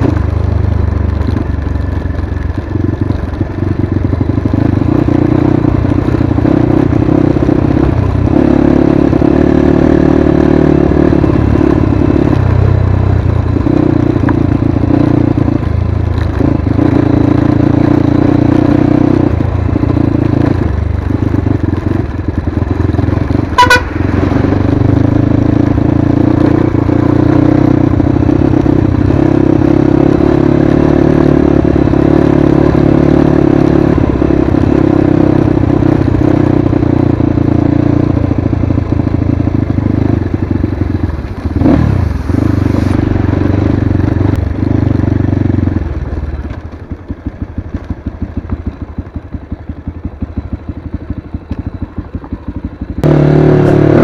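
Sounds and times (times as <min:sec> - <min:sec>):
dirt bike engine running: 0:00.0 - 0:54.0
horn beep: 0:23.5 - 0:24.0.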